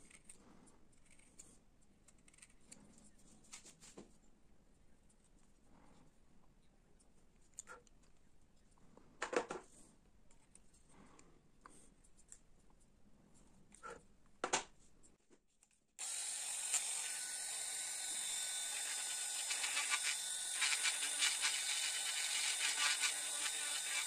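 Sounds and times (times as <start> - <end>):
rotary tool whine: 16.0 - 24.0
bit grinding into wood: 16.6 - 24.0.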